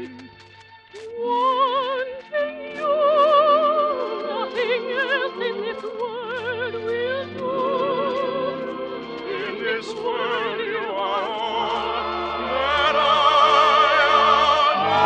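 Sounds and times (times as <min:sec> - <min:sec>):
orchestra playing operetta music: 0:07.6 - 0:15.0.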